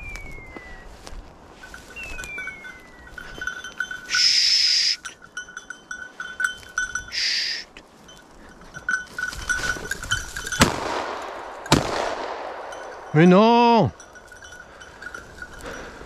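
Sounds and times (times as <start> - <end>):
falling whistle-like tone: 0.0 - 0.9
collar bells tinkling: 1.4 - 16.0.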